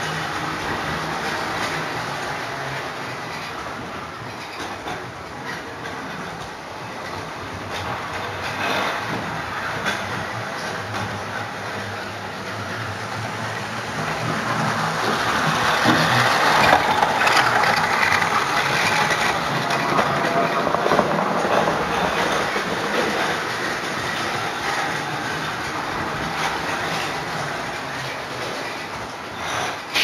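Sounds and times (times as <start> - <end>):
model train wheels rattling: 0.0 - 30.0.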